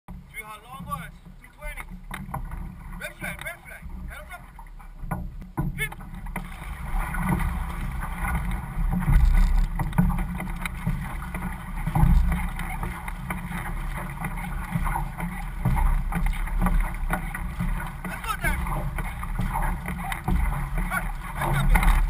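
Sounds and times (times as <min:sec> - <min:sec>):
water splashing along canoe: 0:00.1 - 0:22.0.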